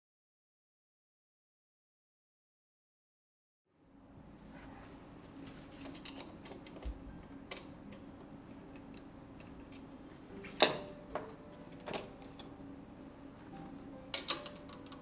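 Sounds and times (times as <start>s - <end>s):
faint steady hum: 3.7s - 15.0s
screwdriver clicking and scraping metal: 5.8s - 6.9s.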